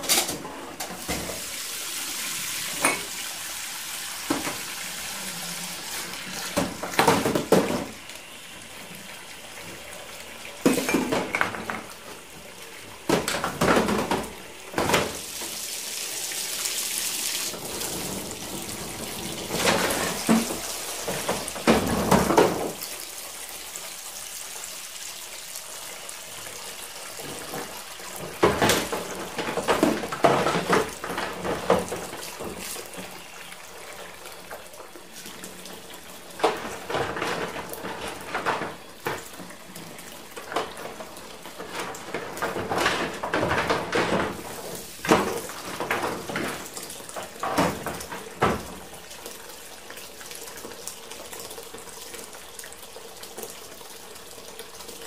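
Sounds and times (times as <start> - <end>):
tap water running: 0.0 - 55.0
dishes and cutlery clinking: 2.8 - 3.1, 10.7 - 11.8.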